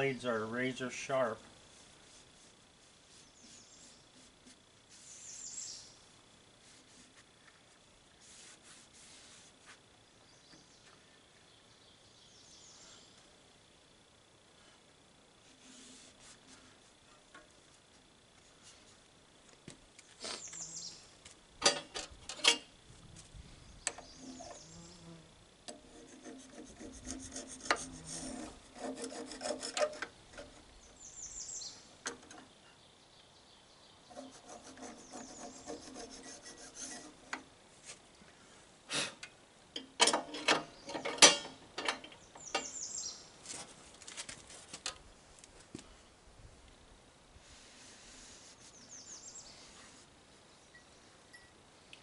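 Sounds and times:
sharp knocks against metal: 39.8s - 42.7s.

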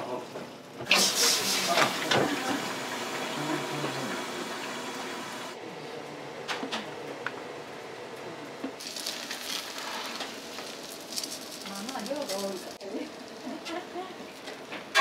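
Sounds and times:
dumplings sizzling on griddle: 8.8s - 13.6s.

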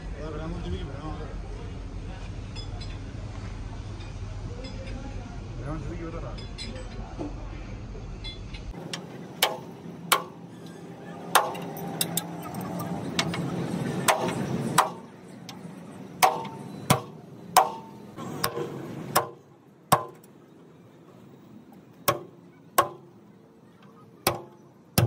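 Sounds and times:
hammer striking metal: 8.3s - 10.4s, 11.3s - 12.4s, 14.0s - 15.1s, 16.2s - 20.3s, 22.0s - 23.1s, 24.2s - 25.0s.

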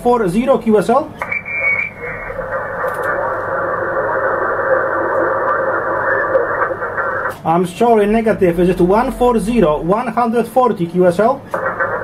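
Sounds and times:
radio static hiss: 0.3s - 8.3s, 11.4s - 12.0s
faint voice over radio: 1.9s - 7.4s.

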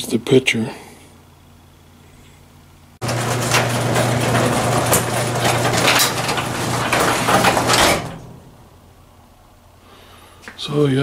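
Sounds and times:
garage door rattling on tracks: 3.0s - 8.9s
garage door opener motor hum: 3.0s - 9.3s.

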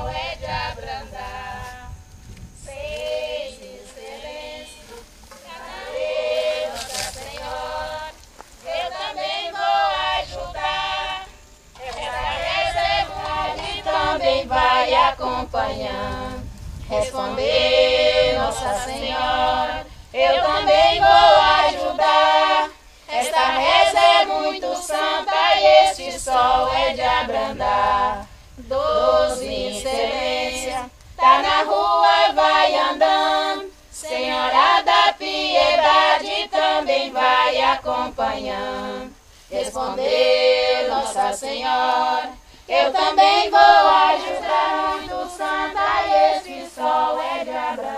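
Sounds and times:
women singing unaccompanied chant: 0.0s - 47.9s.

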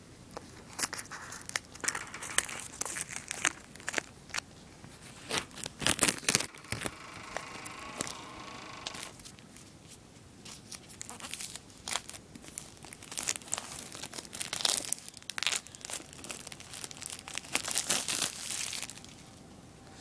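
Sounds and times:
plastic wrap crinkling: 0.4s - 9.7s, 10.5s - 19.4s.

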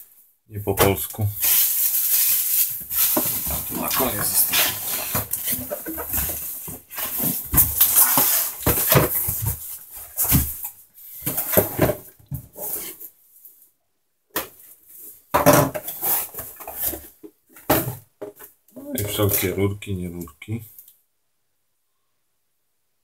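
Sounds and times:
cardboard and bubble wrap rustling: 0.8s - 13.0s.

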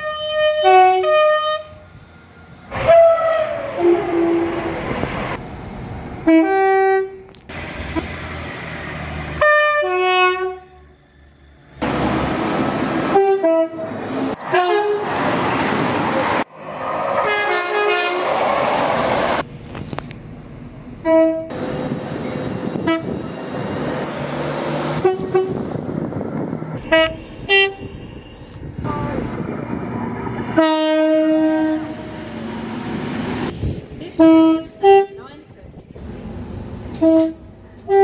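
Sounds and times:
train horn blasts: 0.0s - 1.8s, 2.8s - 4.7s, 6.2s - 7.3s, 9.4s - 10.8s, 13.1s - 15.0s, 17.2s - 18.3s, 21.0s - 21.5s, 22.8s - 23.2s, 25.0s - 25.7s, 26.8s - 28.4s, 30.6s - 32.3s, 34.2s - 35.3s, 36.9s - 38.0s
trains rushing and rumbling: 0.0s - 38.0s.

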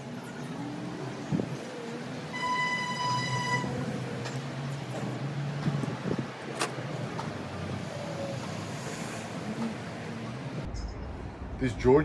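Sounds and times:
distant road traffic hum: 0.0s - 12.0s.

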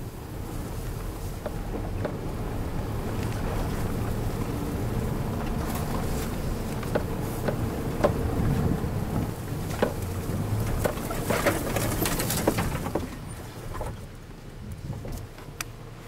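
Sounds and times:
vehicle engine droning: 0.0s - 16.0s
vehicle bouncing knocks: 5.2s - 14.1s.

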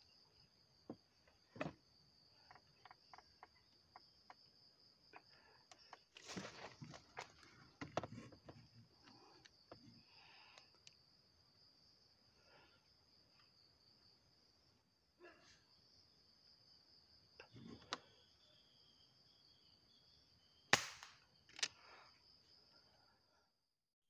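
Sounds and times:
air rifle shot crack: 20.7s - 21.2s.

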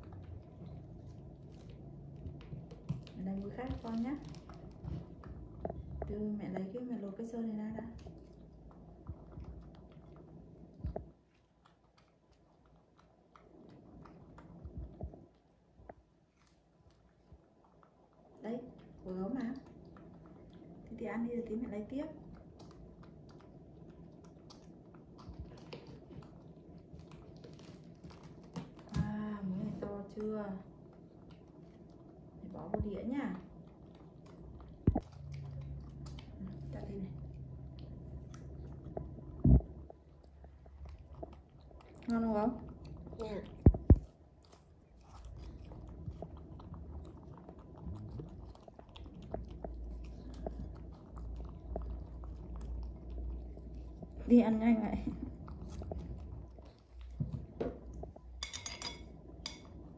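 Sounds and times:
wet chewing: 0.0s - 59.9s
low rumble: 29.0s - 58.4s.

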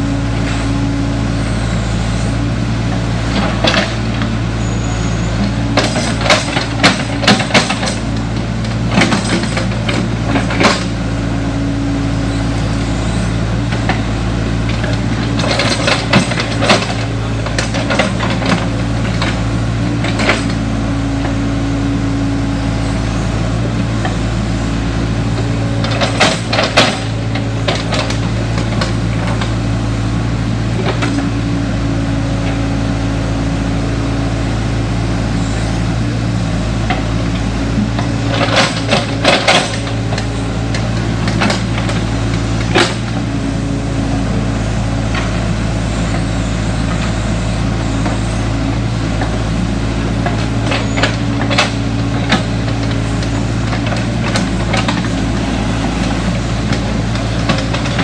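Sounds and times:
excavator diesel engine running: 0.0s - 58.0s
excavator bucket clanks and knocks: 5.6s - 8.2s, 8.8s - 10.9s, 14.7s - 20.6s, 25.8s - 29.5s, 37.9s - 43.2s, 50.2s - 58.0s.

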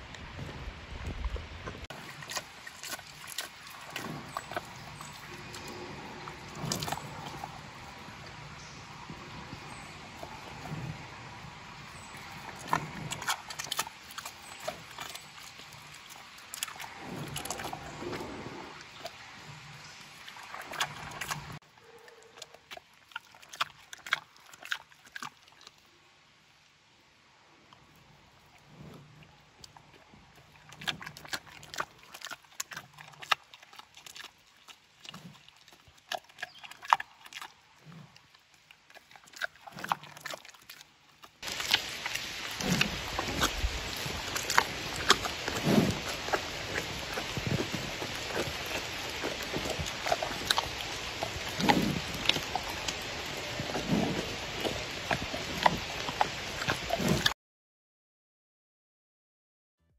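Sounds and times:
steady hiss: 41.4s - 57.2s
panda chewing: 41.4s - 57.3s.

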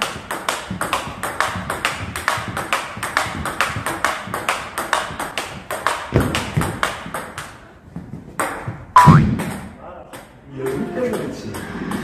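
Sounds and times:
table tennis ball hits: 8.4s - 9.8s.

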